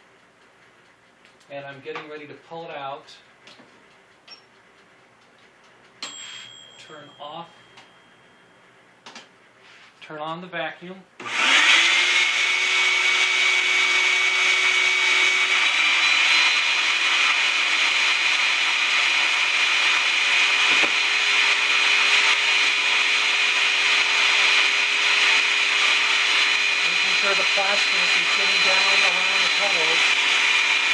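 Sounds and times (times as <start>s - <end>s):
vacuum cleaner whining: 11.2s - 30.9s.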